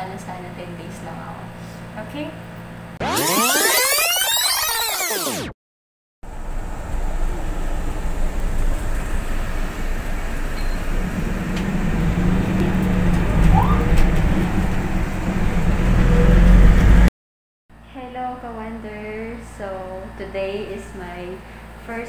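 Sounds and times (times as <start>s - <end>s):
road and engine drone: 6.2s - 17.1s.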